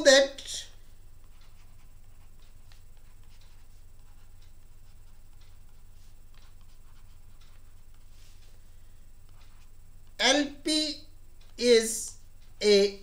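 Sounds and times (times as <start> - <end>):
steady low hum: 0.0 - 13.0
stylus scratching on tablet: 1.2 - 8.6.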